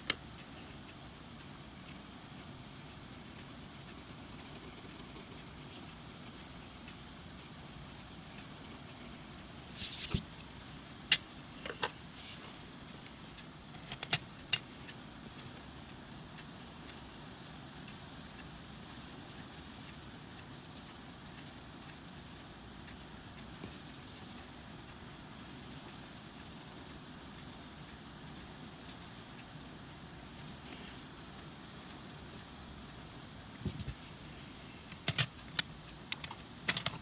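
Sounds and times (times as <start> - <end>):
faint low hum: 0.0 - 37.0
pencils rustling: 9.7 - 10.3.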